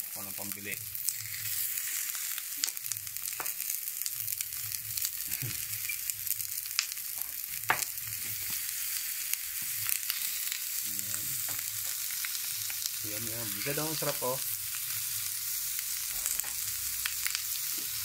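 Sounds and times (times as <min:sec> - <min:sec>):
food sizzling on grill pan: 0:00.0 - 0:18.0
sharp pops and crackles: 0:02.2 - 0:14.9, 0:16.0 - 0:18.0.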